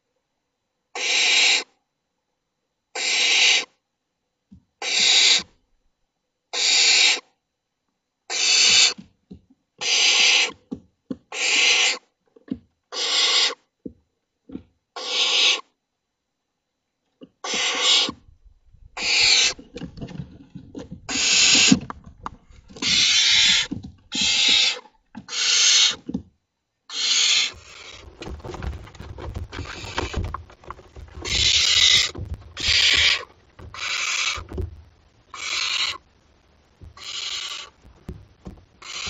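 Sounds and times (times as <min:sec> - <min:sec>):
owl chicks hissing: 0:19.0 - 0:19.6, 0:21.1 - 0:21.8, 0:22.7 - 0:26.0, 0:31.2 - 0:34.6, 0:35.3 - 0:36.0, 0:37.0 - 0:37.8, 0:38.8 - 0:39.0
birds flapping in a box: 0:27.4 - 0:36.1, 0:36.8 - 0:39.0.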